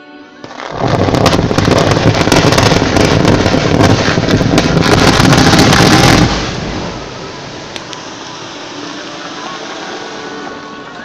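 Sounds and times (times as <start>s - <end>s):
mine blast rumble with cracks: 0.5s - 7.5s.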